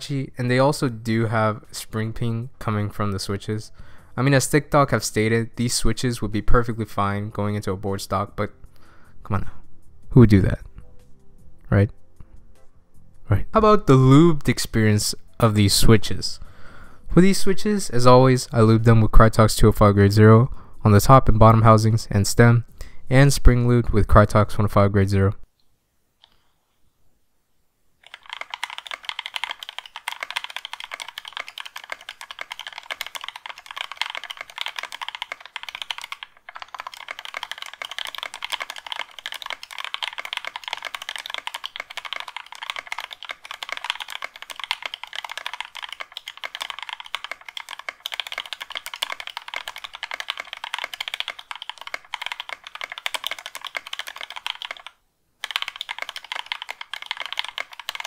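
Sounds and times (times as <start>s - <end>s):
fast keyboard typing: 0.0s - 8.3s, 28.0s - 58.0s.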